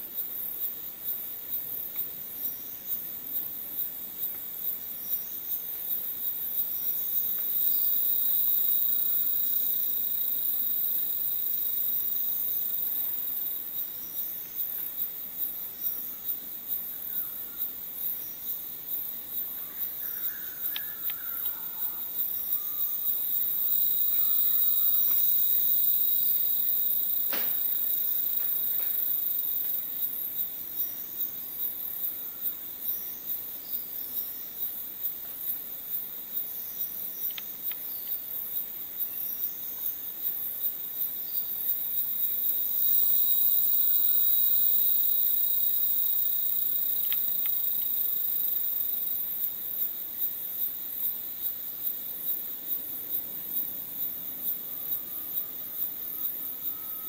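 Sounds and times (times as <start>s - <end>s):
insect chorus shrilling: 4.6s - 34.8s, 37.1s - 57.0s
lower insect shrill: 19.8s - 29.2s, 42.7s - 47.6s, 54.7s - 57.0s.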